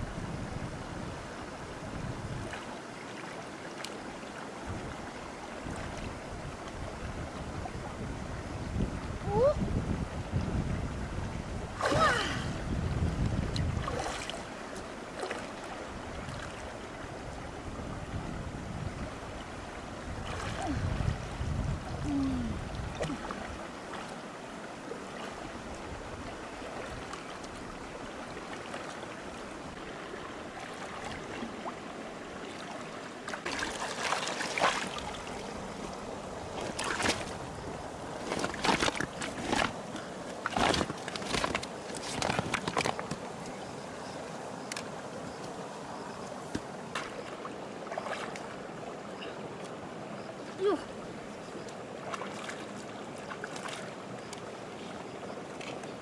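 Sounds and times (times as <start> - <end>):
stream water sloshing and splashing: 0.0 - 56.0
short sharp splashes and knocks: 13.5 - 14.4, 33.3 - 35.1, 36.6 - 37.4, 46.5 - 48.5, 53.2 - 53.9.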